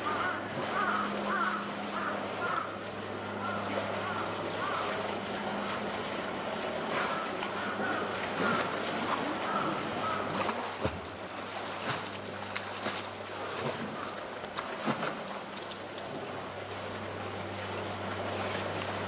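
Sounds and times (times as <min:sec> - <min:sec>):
running wash of water: 0:00.0 - 0:19.0
steady low hum: 0:00.0 - 0:19.0
bear splashing in water: 0:03.4 - 0:17.0.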